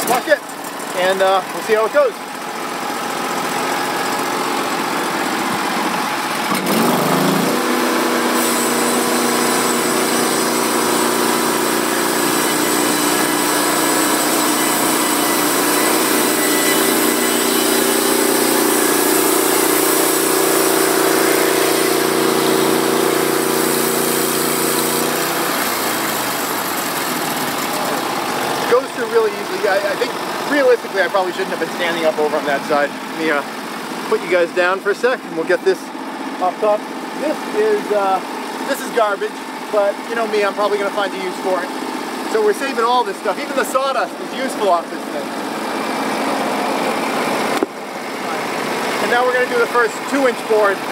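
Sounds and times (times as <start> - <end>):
gas engine running under load: 0.0 - 50.9
band blade sawing through log: 6.7 - 26.4.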